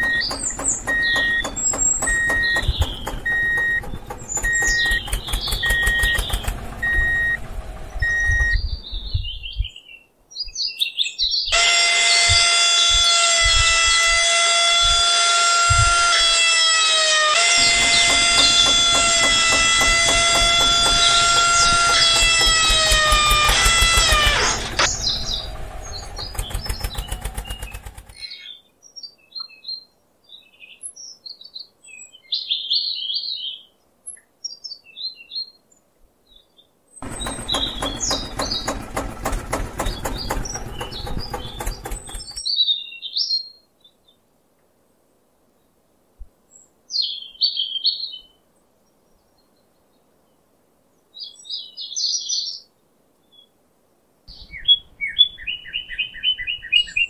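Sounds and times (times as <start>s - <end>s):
birds chirping: 0.0s - 29.8s, 36.3s - 43.5s
small electric motor buzzing: 11.6s - 25.0s.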